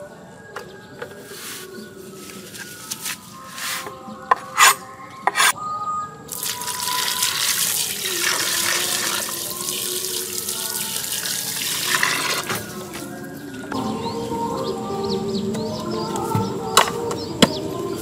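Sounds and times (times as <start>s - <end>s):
water pouring into clay pot: 6.3s - 13.1s.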